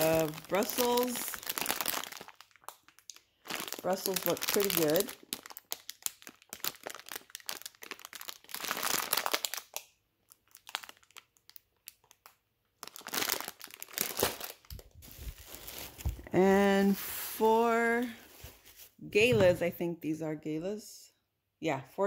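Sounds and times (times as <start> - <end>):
plastic bag crinkling: 0.0 - 19.0.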